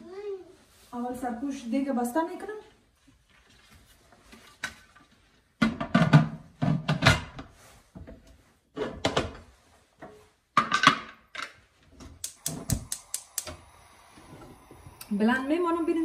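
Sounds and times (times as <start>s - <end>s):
gas hob knob clicking: 12.2s - 13.6s.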